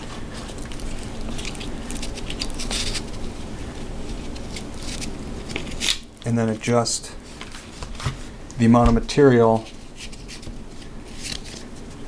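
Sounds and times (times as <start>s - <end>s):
webbing rustling scrapes: 0.0s - 5.9s.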